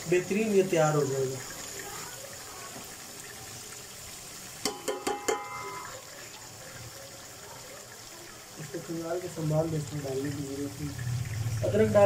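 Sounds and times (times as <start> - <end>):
chicken and onions sizzling: 0.0 - 12.0
spoon clinking on pot: 4.6 - 5.9.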